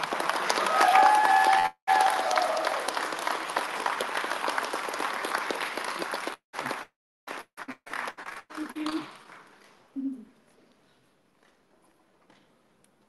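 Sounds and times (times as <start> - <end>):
audience applause: 0.0 - 9.5.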